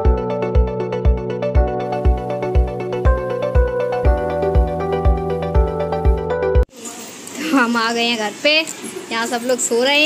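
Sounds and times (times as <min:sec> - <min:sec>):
steady kick drum: 0:00.0 - 0:06.6
synth notes: 0:00.0 - 0:06.6
electronic music: 0:00.0 - 0:06.7.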